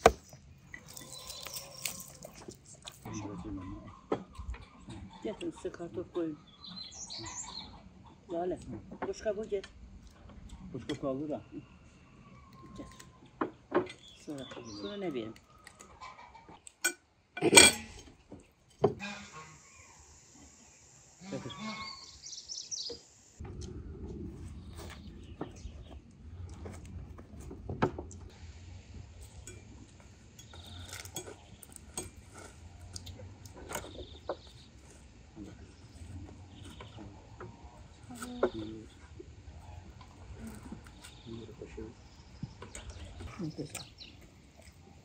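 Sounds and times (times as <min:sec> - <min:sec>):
cutlery and dishes clinking: 0:16.8 - 0:18.0.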